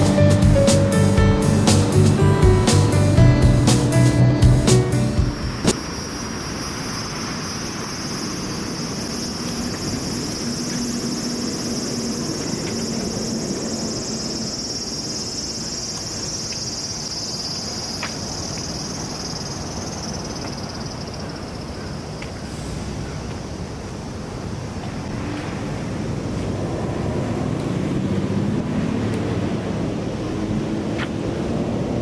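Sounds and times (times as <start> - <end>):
cicadas calling: 5.3 - 25.1.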